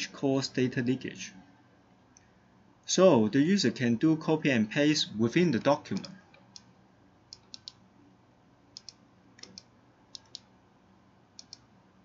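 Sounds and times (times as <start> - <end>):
computer mouse clicking: 6.0 - 6.7, 7.3 - 7.8, 8.7 - 10.5, 11.4 - 11.7.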